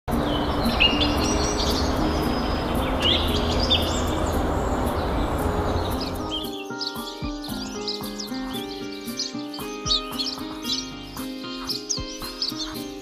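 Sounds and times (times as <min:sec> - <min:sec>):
steady rushing background noise: 0:00.1 - 0:06.4
birds chirping: 0:00.1 - 0:13.0.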